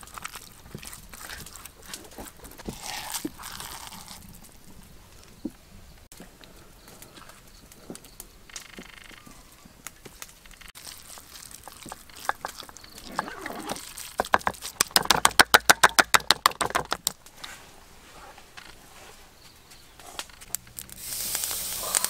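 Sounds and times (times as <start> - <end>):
rustling: 0.0 - 15.2, 15.9 - 22.0
fast run of sharp knocks: 14.2 - 17.2.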